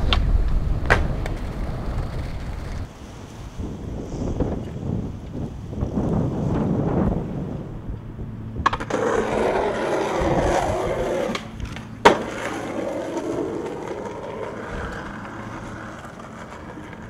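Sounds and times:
skateboard landing clack: 0.0s - 2.9s, 8.6s - 17.0s
skateboard wheels rolling on asphalt: 0.0s - 17.0s.

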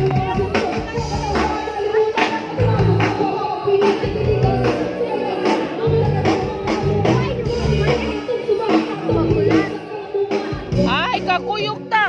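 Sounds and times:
deep bass notes: 0.0s - 3.3s, 4.0s - 5.0s, 5.8s - 8.2s
person singing: 0.0s - 11.0s
drums: 0.0s - 12.0s.

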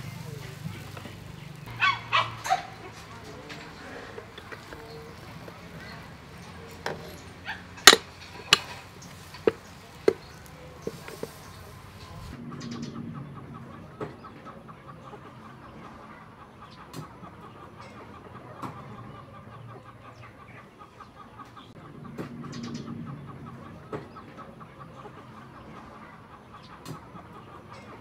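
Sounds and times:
chickens clucking: 0.0s - 28.0s.

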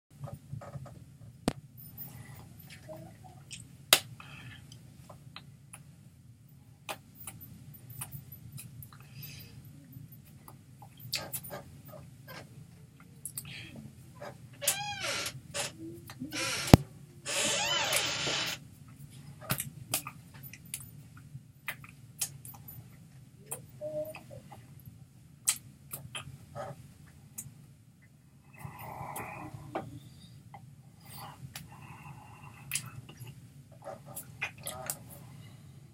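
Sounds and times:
low steady hum: 0.2s - 35.9s.

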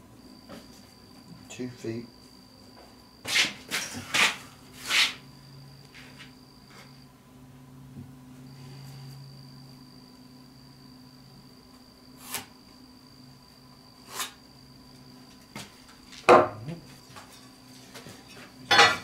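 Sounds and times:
steady low hum: 0.0s - 19.0s
wooden block knocking on board: 16.3s - 16.6s.

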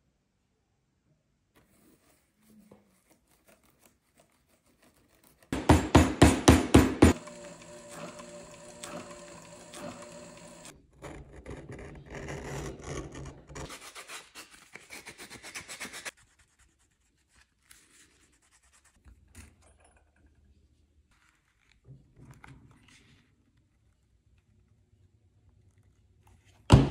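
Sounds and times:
sewing machine stitching: 5.5s - 13.7s.

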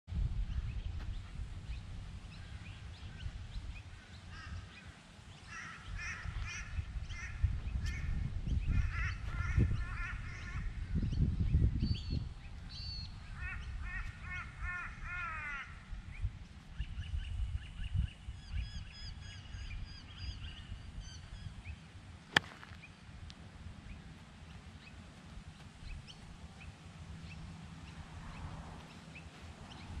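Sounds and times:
wind rumble on microphone: 0.1s - 30.0s
wild birds chattering calls: 2.2s - 11.2s, 12.4s - 23.1s
golf club striking ball: 22.3s - 22.9s.

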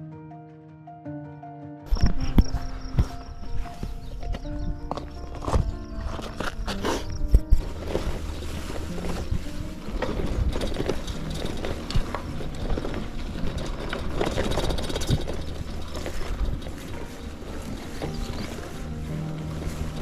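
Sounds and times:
bicycle rattling on dirt trail: 1.9s - 20.0s
wind on microphone: 1.9s - 20.0s
bike clicks and knocks: 4.0s - 20.0s.

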